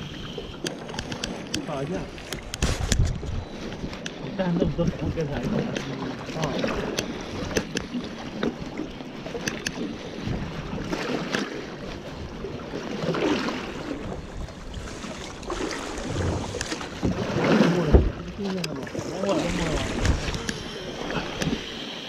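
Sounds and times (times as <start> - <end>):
water sloshing against boat hull: 0.0 - 21.9
clicks: 0.6 - 1.7
wind on microphone: 2.0 - 5.8, 10.2 - 11.3, 13.4 - 21.8.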